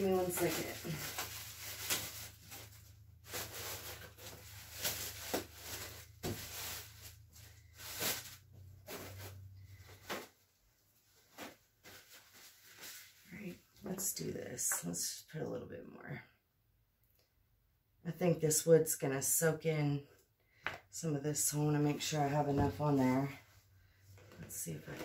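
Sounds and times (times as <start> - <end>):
rustles and knocks of handling: 0.0 - 13.9, 22.1 - 25.0.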